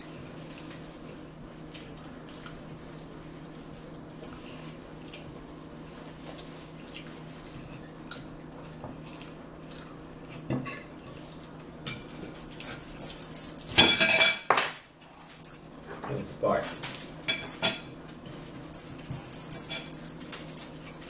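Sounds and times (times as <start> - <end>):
fork clinking and scraping plate: 16.8 - 17.9.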